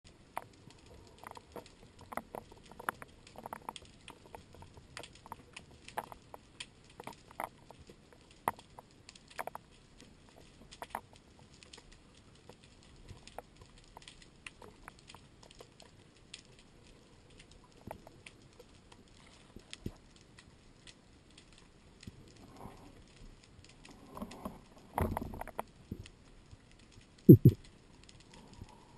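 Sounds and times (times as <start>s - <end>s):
low steady hiss: 0.1s - 28.9s
underwater clicks and pops: 27.3s - 27.7s.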